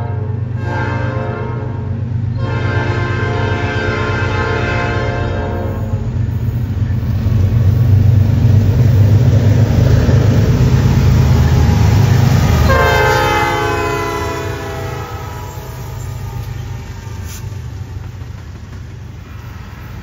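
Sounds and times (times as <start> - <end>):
locomotive horn: 0.0 - 6.0, 11.2 - 17.4
diesel locomotive engine rumble: 0.0 - 20.0.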